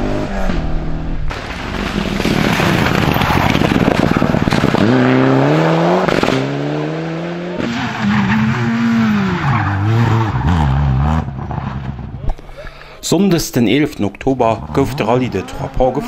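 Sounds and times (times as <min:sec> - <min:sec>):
rally car engines accelerating: 0:00.0 - 0:12.2, 0:14.4 - 0:16.0
car engine revving through shifts: 0:02.2 - 0:12.2.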